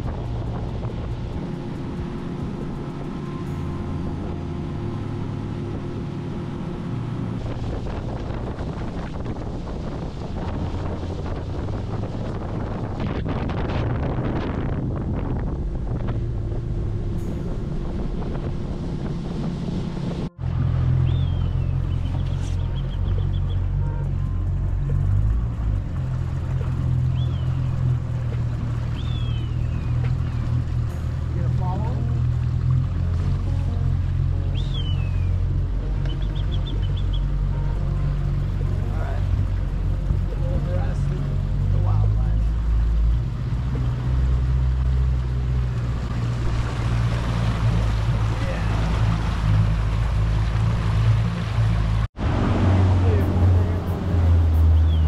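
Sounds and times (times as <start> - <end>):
wind buffeting microphone: 0.0 - 3.2, 7.2 - 25.2
outboard motor running: 0.0 - 55.0
water rushing past hull: 0.0 - 55.0
bird calling: 21.0 - 23.7, 28.9 - 30.4, 34.4 - 35.4, 36.0 - 37.3.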